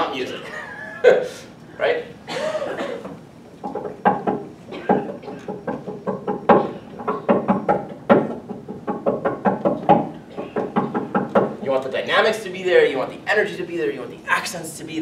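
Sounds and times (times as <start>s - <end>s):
hand tapping on piano: 3.6s - 11.6s.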